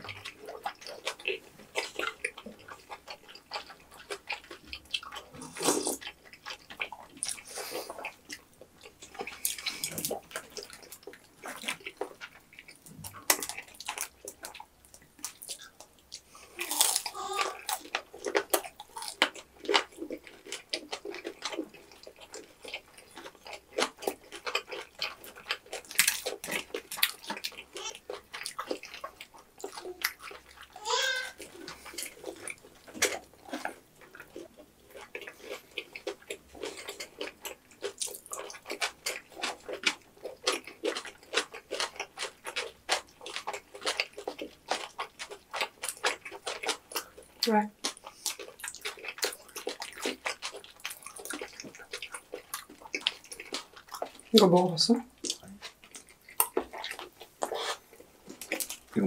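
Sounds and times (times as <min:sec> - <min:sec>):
wet chewing and smacking: 0:00.0 - 0:59.0.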